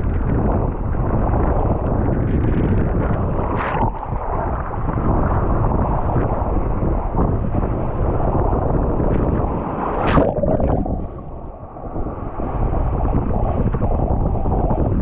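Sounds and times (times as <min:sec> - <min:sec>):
wind buffeting microphone: 0:00.0 - 0:15.0
water rushing: 0:03.3 - 0:06.5, 0:09.7 - 0:14.7.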